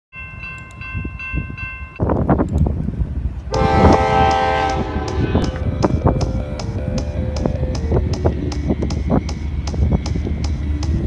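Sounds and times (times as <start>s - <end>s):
crossing warning bell ringing: 0.1s - 2.5s, 3.5s - 11.0s
low rumble: 2.4s - 11.0s
locomotive air horn: 3.5s - 6.1s.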